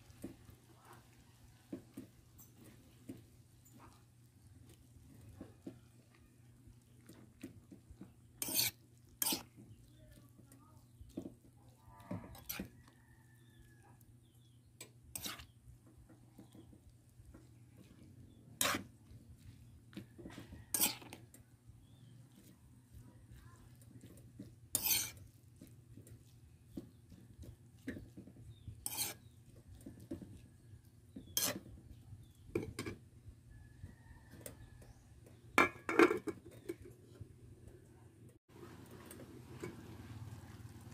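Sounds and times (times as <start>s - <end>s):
metal spoon scraping a wok: 8.4s - 9.7s, 12.2s - 12.8s, 14.8s - 15.6s, 18.6s - 19.0s, 20.3s - 21.2s, 24.7s - 25.2s, 28.6s - 29.4s, 31.2s - 31.8s.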